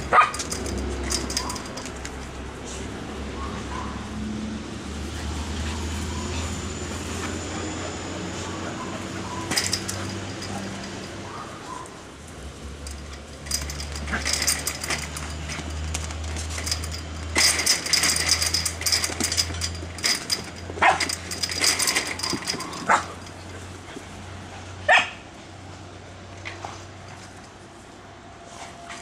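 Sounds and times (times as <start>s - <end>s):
puppies scuffling: 0.0s - 2.4s, 5.0s - 24.2s
puppy barks: 0.1s - 0.4s, 3.3s - 4.1s, 24.9s - 25.2s.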